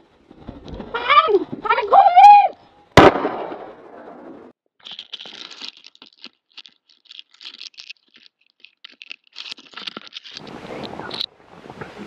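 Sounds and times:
shotgun shot echo: 3.0s - 4.0s.

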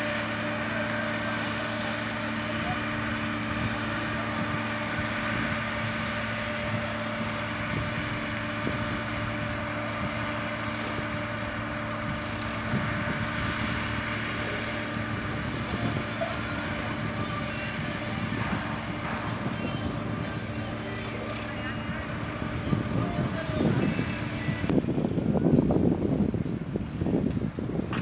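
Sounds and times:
diesel engine running under load: 0.0s - 28.0s.

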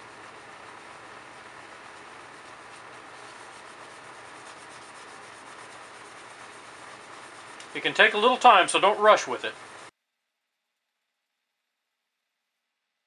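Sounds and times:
sponge scrubbing fan blade: 0.0s - 9.9s.

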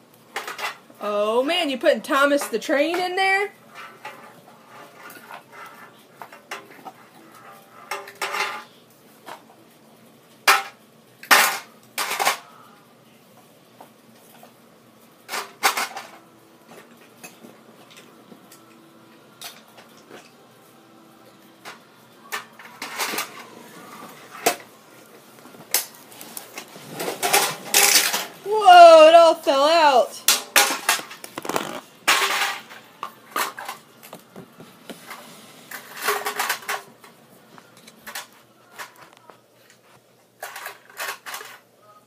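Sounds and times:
toys clinking in metal tin: 27.2s - 28.3s.

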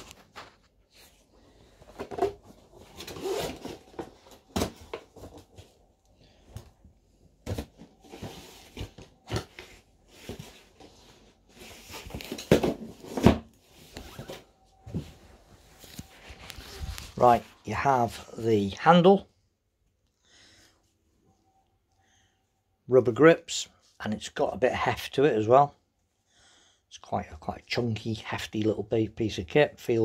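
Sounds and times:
packaging rustling: 15.6s - 17.5s.

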